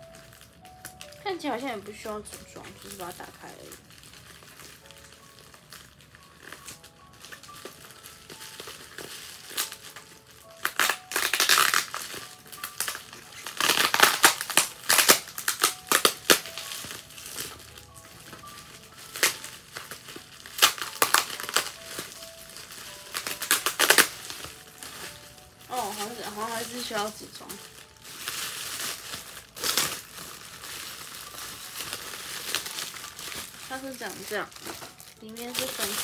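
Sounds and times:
bubble wrap crinkling: 0:00.0 - 0:36.0
faint music: 0:00.0 - 0:36.0.

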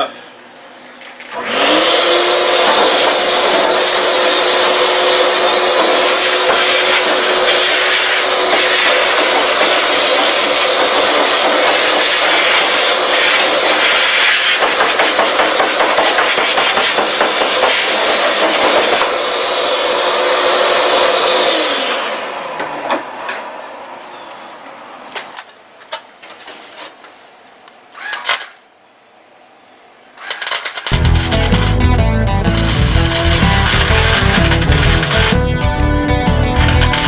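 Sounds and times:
angle grinder on steel: 0:01.4 - 0:22.6, 0:30.2 - 0:35.6, 0:36.3 - 0:37.0
background music: 0:31.0 - 0:37.0.

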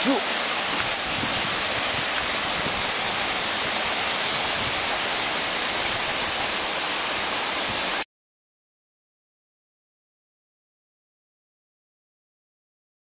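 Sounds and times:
waterfall rushing: 0:00.0 - 0:08.0.

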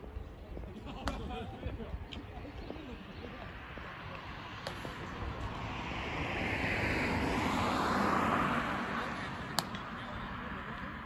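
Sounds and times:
vehicle passing by: 0:03.9 - 0:11.0.

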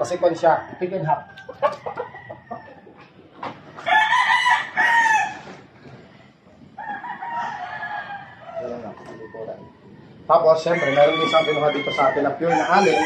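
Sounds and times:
rooster crowing: 0:00.0 - 0:02.9, 0:03.8 - 0:05.6, 0:06.8 - 0:09.8, 0:10.5 - 0:13.0.

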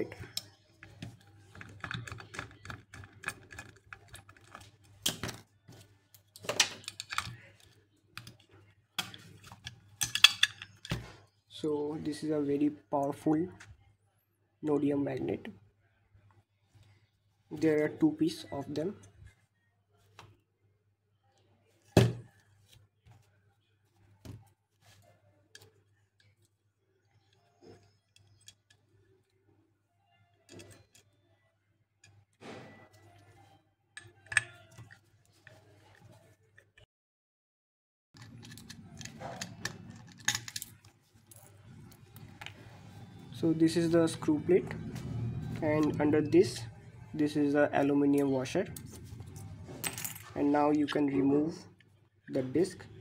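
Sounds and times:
metal hard drive parts clicking: 0:00.0 - 0:05.4
metal parts clattering: 0:09.6 - 0:11.0, 0:38.2 - 0:41.5.

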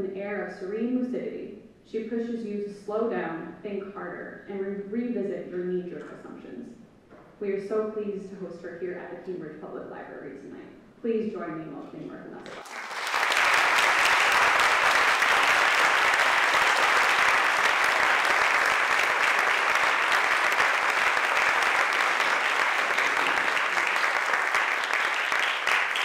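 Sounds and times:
audience applauding: 0:12.5 - 0:26.0.

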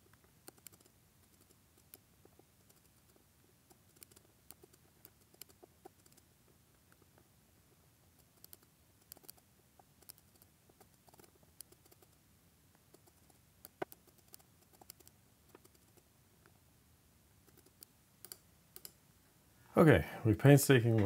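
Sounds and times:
computer mouse clicks: 0:00.1 - 0:06.3, 0:08.2 - 0:12.2, 0:12.9 - 0:16.1, 0:17.4 - 0:19.0.

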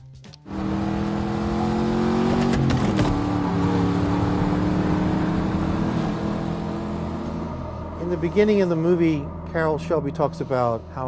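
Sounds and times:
race car engine at speed: 0:00.5 - 0:10.9.

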